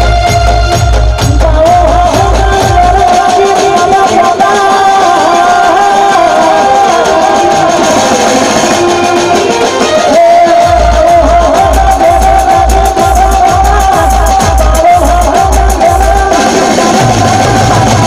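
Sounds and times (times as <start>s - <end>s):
folk band playing: 0.0s - 18.0s
low drum beat: 0.0s - 18.0s
man singing slow melody: 10.0s - 18.0s.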